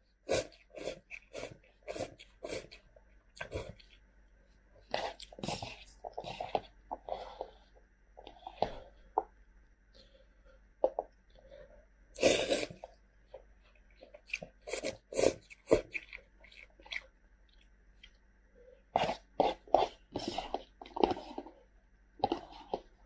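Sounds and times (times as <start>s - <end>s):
person slurping noodles: 0.3s - 2.8s, 12.2s - 12.9s, 14.6s - 16.0s, 19.0s - 21.5s.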